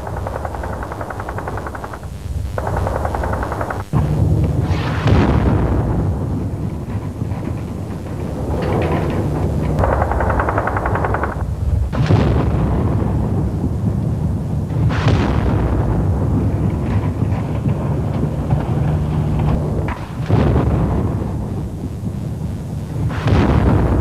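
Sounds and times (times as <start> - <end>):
rapid gunfire cracks: 0.0 - 5.9, 6.6 - 12.9
constant low rumble: 0.0 - 24.0
echoing shell explosions: 0.0 - 24.0.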